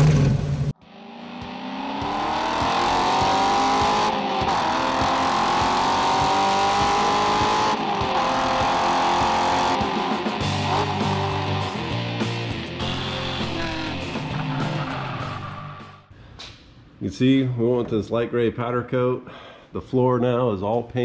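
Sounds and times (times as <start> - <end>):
race car engine at high revs: 0.0 - 15.6.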